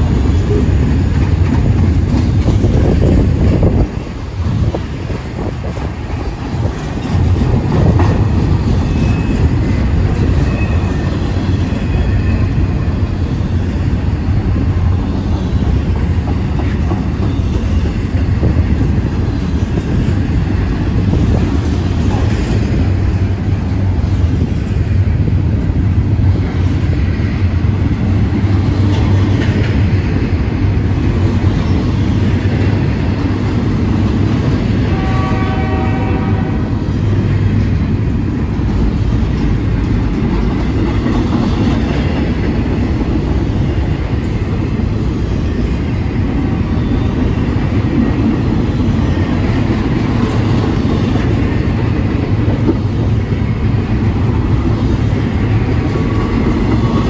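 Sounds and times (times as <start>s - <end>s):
freight train wheels rumbling: 0.0s - 57.0s
train horn: 34.8s - 36.8s.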